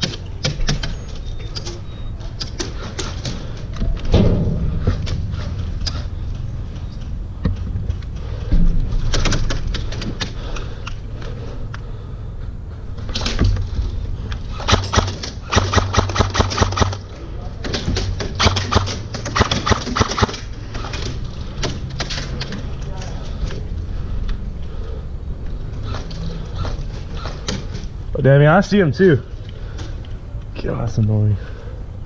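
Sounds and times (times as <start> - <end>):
low rumble: 3.6 - 17.6
electric airsoft rifle firing: 14.5 - 17.2, 18.4 - 20.9.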